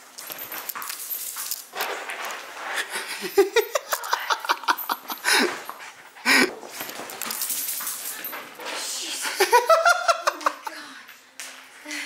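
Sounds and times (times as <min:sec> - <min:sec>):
person giggling quietly: 0:02.9 - 0:06.6.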